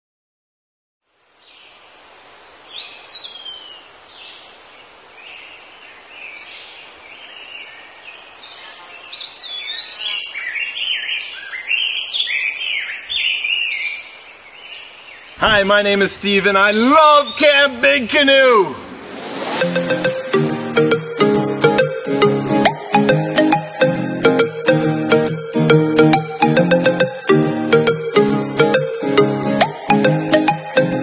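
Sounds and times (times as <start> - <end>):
steady outdoor hiss: 1.0 - 31.0
birds chirping and singing: 2.5 - 18.4.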